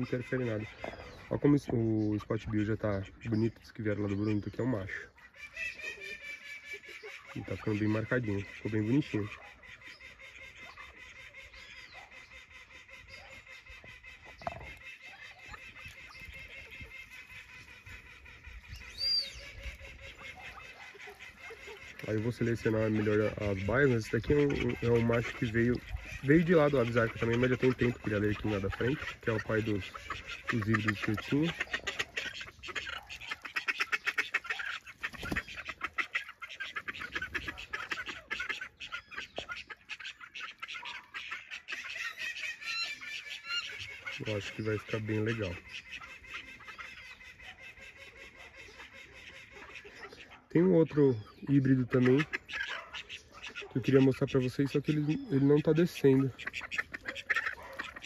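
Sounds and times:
ducks calling softly: 0.0 - 58.0
high arching chirp: 18.6 - 19.8.

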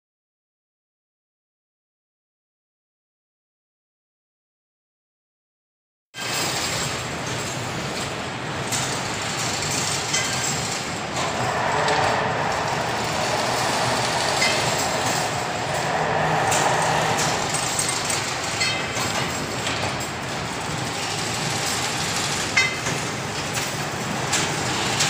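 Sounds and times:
fence weaving machine clatter: 6.2 - 25.0.

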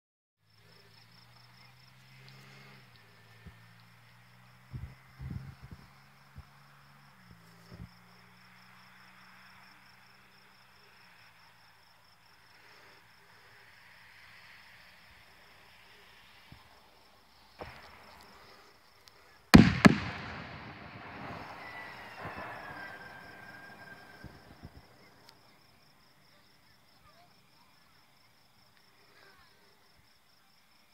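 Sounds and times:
crickets chirring: 0.5 - 30.9
firework shell bursting: 19.6 - 25.0.

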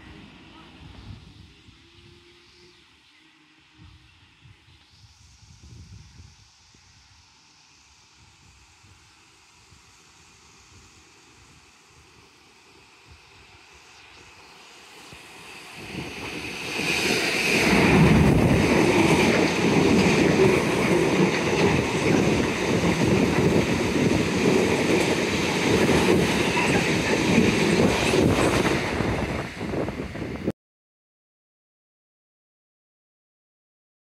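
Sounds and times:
diesel freight train passing: 0.0 - 4.3, 9.1 - 30.5
wheels rumbling on rail: 9.7 - 30.5.

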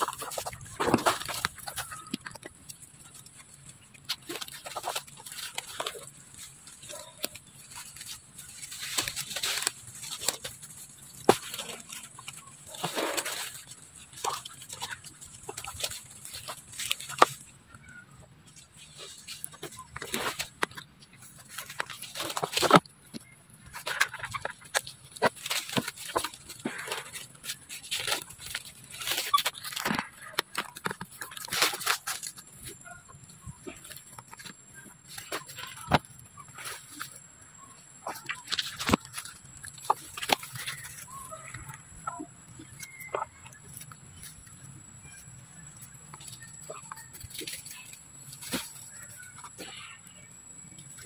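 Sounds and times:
leaves rustling: 0.0 - 51.0
plastic crinkling: 0.0 - 51.0
monkeys squeaking and chirping: 23.8 - 50.3.

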